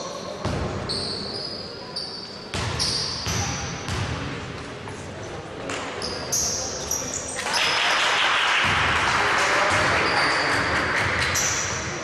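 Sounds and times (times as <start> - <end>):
sneakers squeaking: 0.1 - 4.1, 5.7 - 7.9, 9.6 - 12.0.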